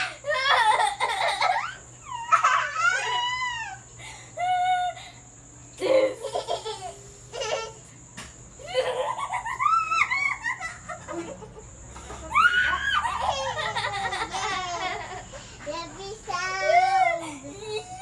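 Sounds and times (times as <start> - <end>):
girls laughing: 0.0 - 5.1, 5.8 - 7.8, 8.6 - 15.7.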